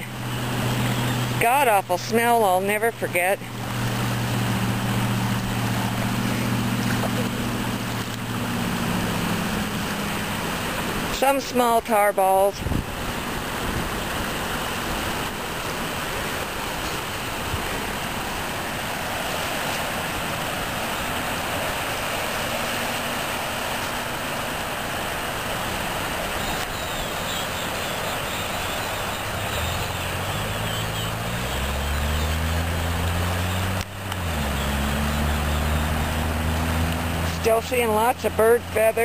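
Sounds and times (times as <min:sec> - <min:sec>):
engine droning: 0:00.0 - 0:39.0
gentle surf: 0:00.0 - 0:39.0
wind: 0:00.0 - 0:39.0.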